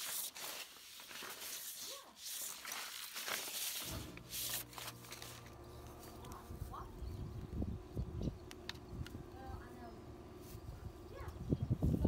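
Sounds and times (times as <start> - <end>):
paper rustling on concrete: 0.0 - 6.9
low steady hum: 3.9 - 12.0.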